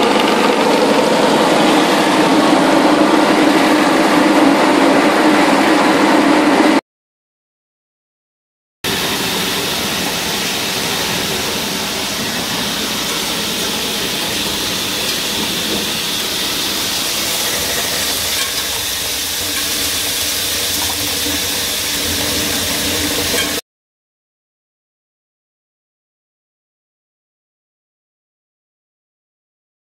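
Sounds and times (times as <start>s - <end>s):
fruit sieving machine running: 0.0s - 6.8s, 8.9s - 23.6s.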